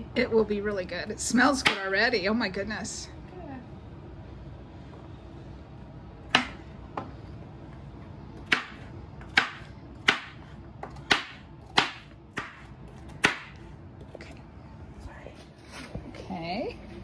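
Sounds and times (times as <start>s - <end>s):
knife chopping on cutting board: 8.4s - 13.6s.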